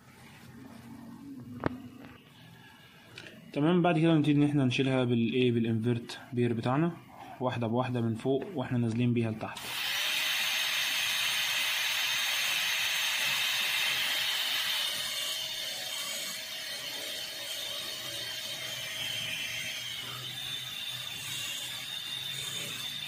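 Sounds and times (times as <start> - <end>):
dental drill whining and grinding: 9.6 - 23.0.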